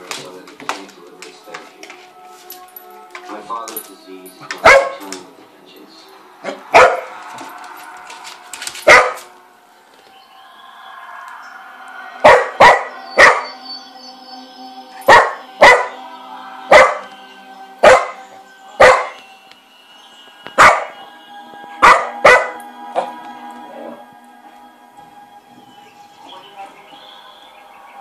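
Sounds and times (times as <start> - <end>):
dog barking: 4.6 - 5.0, 6.4 - 7.1, 8.9 - 9.3, 12.2 - 13.5, 15.1 - 16.0, 16.7 - 17.1, 17.8 - 18.2, 18.8 - 19.2, 20.6 - 21.0, 21.8 - 22.6.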